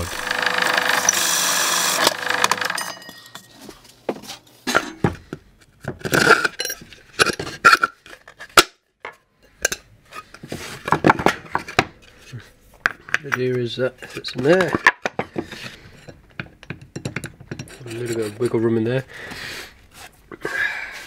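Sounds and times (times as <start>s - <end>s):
drill press drilling plywood: 0.0s - 2.8s
metallic clinks and knocks: 2.6s - 3.8s.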